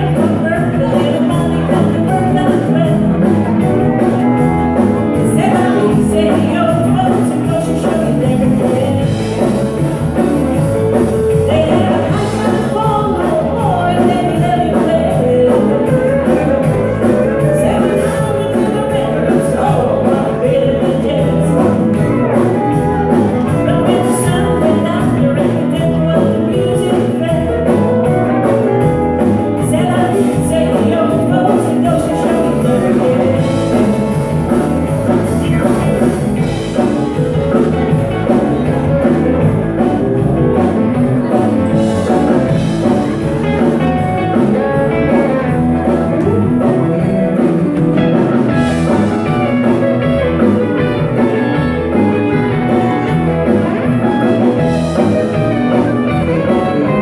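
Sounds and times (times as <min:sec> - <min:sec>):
woman singing: 0:00.0 - 0:10.3, 0:10.9 - 0:39.0
country-rock band playing: 0:00.0 - 0:57.0.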